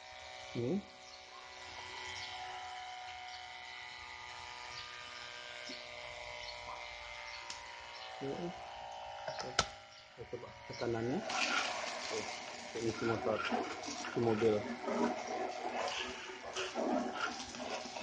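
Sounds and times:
water pump humming and whining: 0:00.0 - 0:18.0
hose nozzle spraying water: 0:10.8 - 0:18.0.

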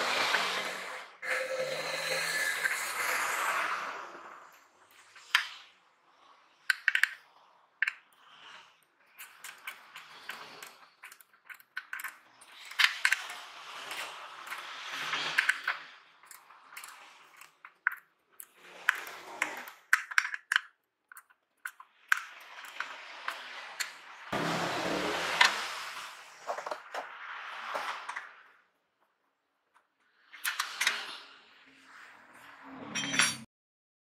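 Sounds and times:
small plastic clicks: 0:06.6 - 0:24.0.

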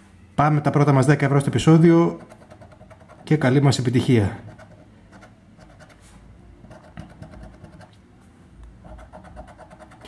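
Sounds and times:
coin scratching a scratch card: 0:02.1 - 0:03.5, 0:04.4 - 0:08.0, 0:08.8 - 0:10.0.

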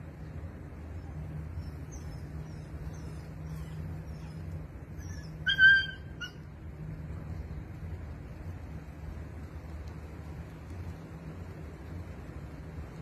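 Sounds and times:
puppy whining: 0:01.6 - 0:06.4.

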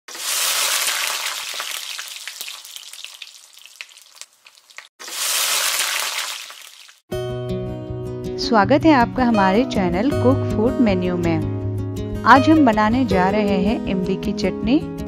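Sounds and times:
food frying in hot oil: 0:00.1 - 0:07.0
oil popping: 0:00.1 - 0:07.0.

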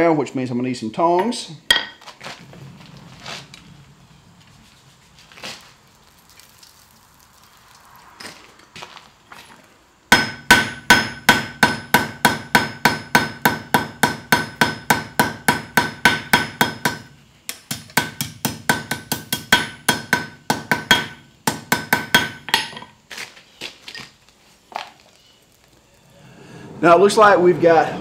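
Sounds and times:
hammer striking hot steel on anvil: 0:01.2 - 0:02.0, 0:10.1 - 0:22.9.

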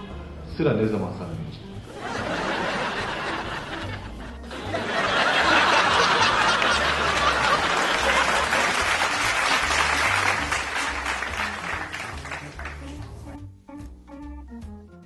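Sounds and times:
background music with bass line: 0:00.0 - 0:15.0
audience laughing: 0:01.9 - 0:12.7
audience applauding: 0:04.6 - 0:13.2.

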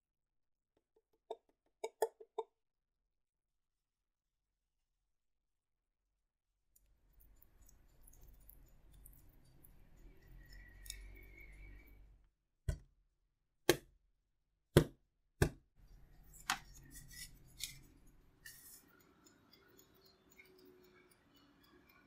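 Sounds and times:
spatula scraping glass bowl: 0:07.2 - 0:12.1.

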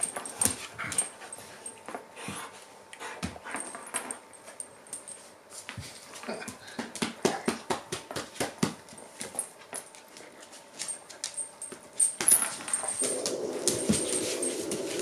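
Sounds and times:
dogs snorting and grunting: 0:12.8 - 0:15.0.

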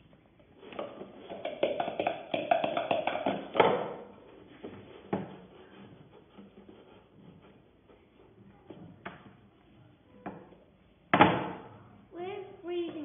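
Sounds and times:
wooden spoon knocking in bowl: 0:00.7 - 0:07.6.

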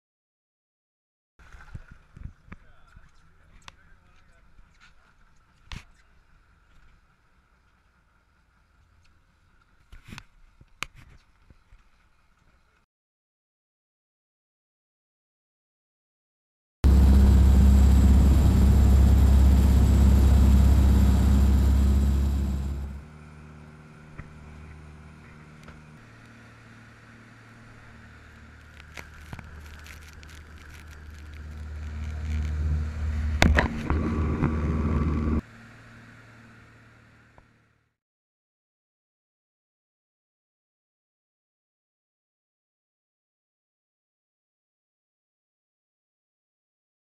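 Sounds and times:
boat engine drone: 0:16.8 - 0:37.8
rush of boat wake: 0:16.9 - 0:23.0, 0:31.1 - 0:37.0.

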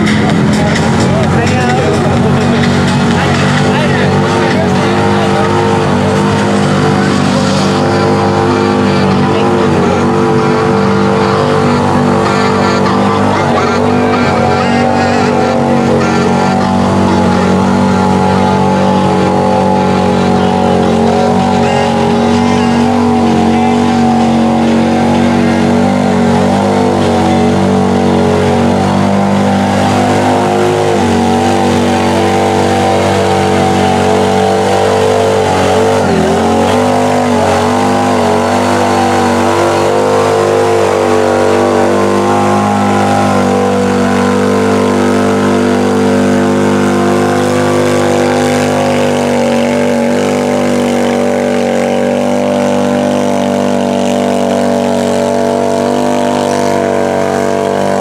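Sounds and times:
tyres churning through mud: 0:00.0 - 0:58.0
vehicle engine revving high: 0:00.0 - 0:58.0.

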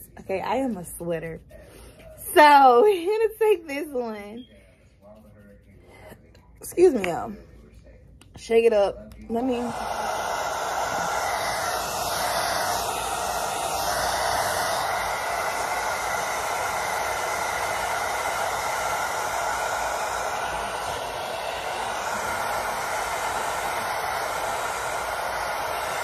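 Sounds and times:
hair dryer blowing: 0:08.8 - 0:26.0.

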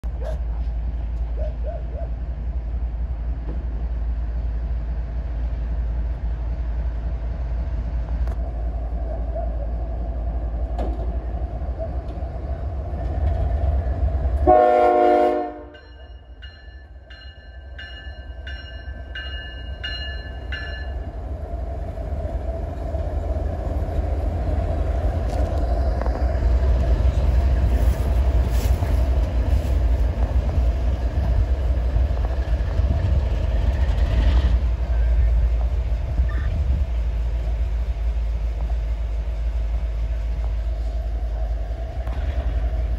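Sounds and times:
locomotive engine rumbling: 0:00.0 - 0:42.9
train horn blast: 0:14.4 - 0:15.9
bell ringing: 0:15.8 - 0:21.1.

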